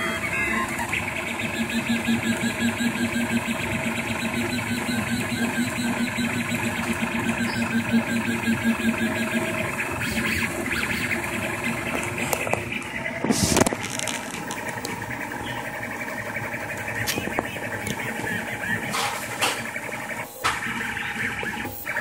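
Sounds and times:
stepper motors buzzing: 0:00.0 - 0:22.0.

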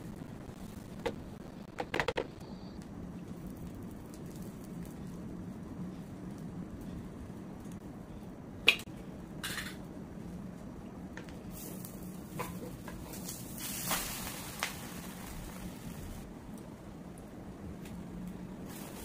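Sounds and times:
steady low hum: 0:00.0 - 0:19.0
omelette sizzling: 0:03.0 - 0:05.7, 0:11.5 - 0:16.3.

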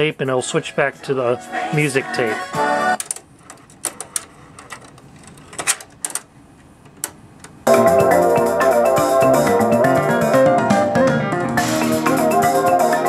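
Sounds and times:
music from cassette tape: 0:01.3 - 0:03.2, 0:07.7 - 0:13.0
cassette deck mechanical clicks: 0:03.0 - 0:07.6.

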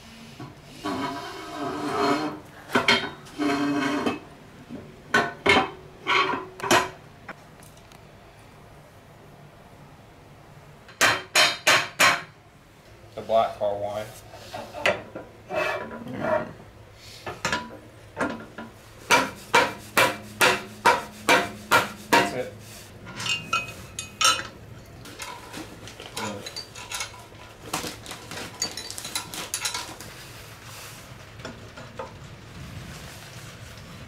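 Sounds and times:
hammer striking metal: 0:19.1 - 0:22.4
metal parts clinking and rattling: 0:23.1 - 0:30.0.

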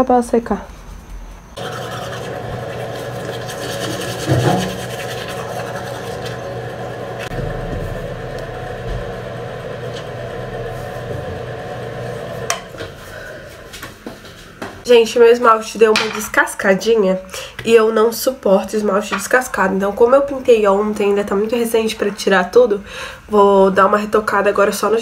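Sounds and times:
electric toothbrush buzzing: 0:01.6 - 0:12.6.

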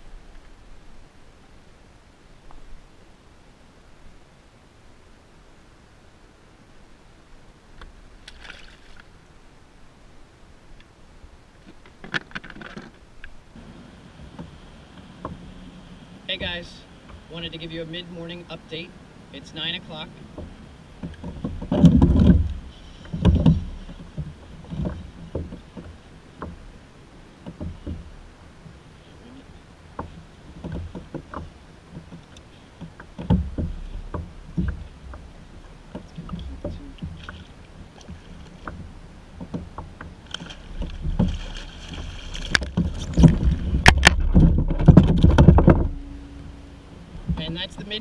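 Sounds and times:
water lapping against kayak hull: 0:11.5 - 0:48.0
low thumps and knocks: 0:20.2 - 0:26.8, 0:27.4 - 0:28.8, 0:29.9 - 0:48.0
rustling: 0:27.5 - 0:47.8.

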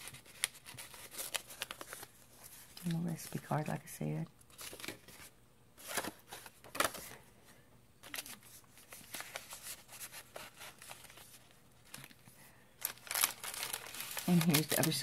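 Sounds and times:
paper rustling and crinkling: 0:00.0 - 0:03.6, 0:04.5 - 0:07.2, 0:08.0 - 0:15.0.

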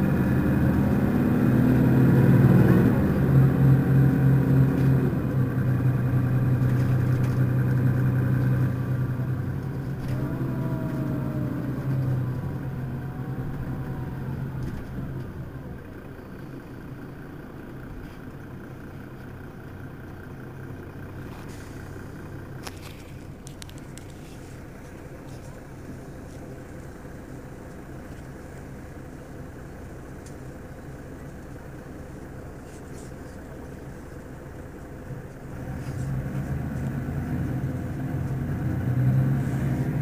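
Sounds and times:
bus engine hum: 0:00.0 - 0:40.0
gliding whine: 0:08.4 - 0:15.9.

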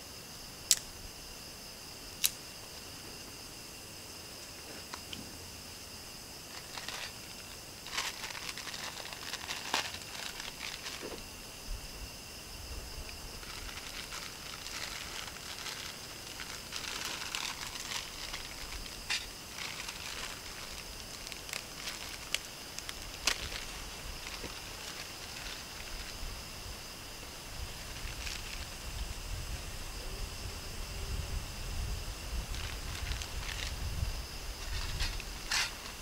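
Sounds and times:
plastic packet crinkling: 0:06.5 - 0:11.1, 0:13.4 - 0:25.7.

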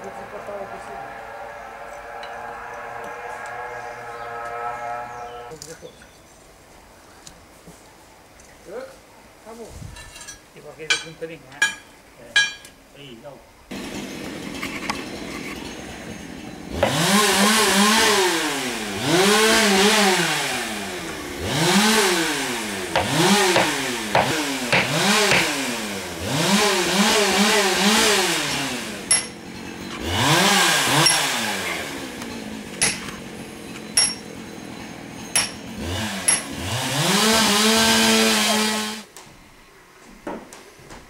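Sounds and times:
petrol engine revving: 0:00.0 - 0:05.6, 0:13.7 - 0:39.1
sharp metal taps: 0:29.1 - 0:29.4, 0:32.8 - 0:33.2, 0:34.0 - 0:34.2, 0:35.4 - 0:35.6.

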